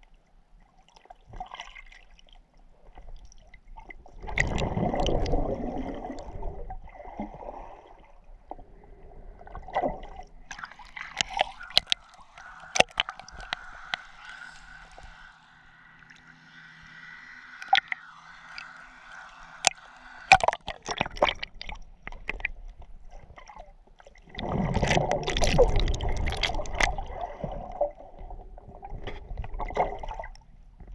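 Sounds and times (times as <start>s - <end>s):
muffled underwater gurgling rush: 3.9s - 30.4s
sharp clicks: 10.5s - 15.2s, 17.6s - 18.8s, 19.6s - 21.4s
water sloshing against camera housing: 10.5s - 15.3s.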